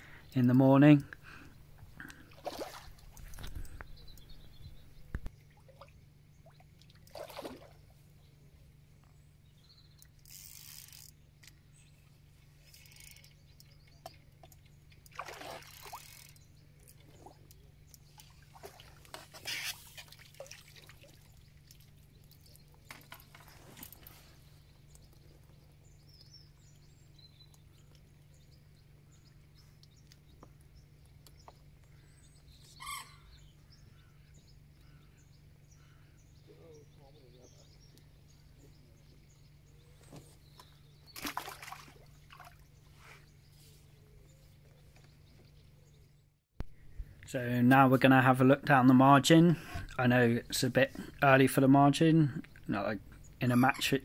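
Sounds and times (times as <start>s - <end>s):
water running off net: 15.1s - 16.0s, 41.2s - 42.6s
fish splashing at surface: 41.2s - 42.6s.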